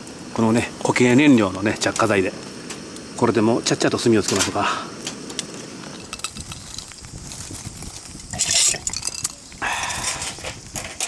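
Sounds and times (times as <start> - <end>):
metal tongs clinking on charcoal: 4.2 - 6.9, 8.3 - 11.0.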